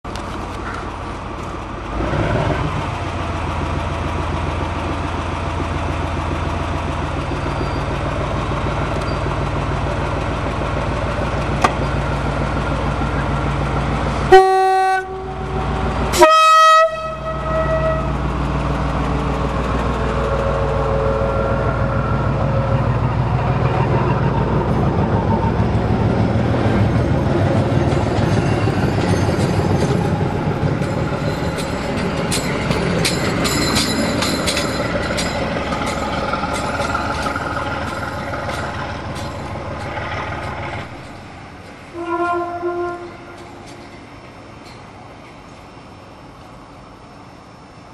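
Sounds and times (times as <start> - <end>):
train diesel engine running: 0.1 - 47.9
train horn blasts: 14.3 - 18.2, 41.9 - 43.7.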